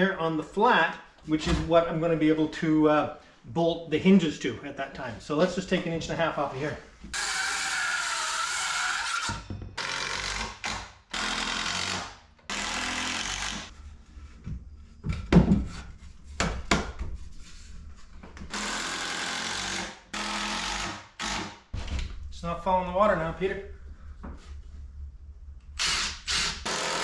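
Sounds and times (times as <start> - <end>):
circular saw cutting wood: 7.1 - 13.8, 25.8 - 27.0.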